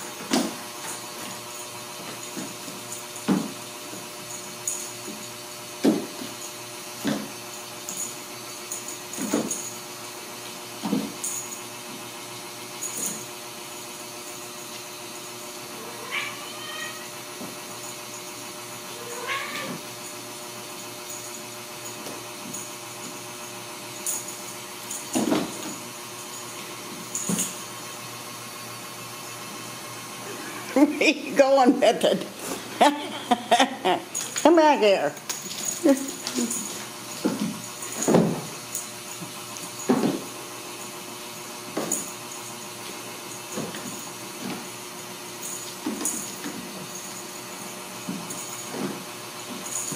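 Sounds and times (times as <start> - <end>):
steady background hum: 15.2 - 49.9
kittens meowing: 15.8 - 17.1, 19.0 - 19.8.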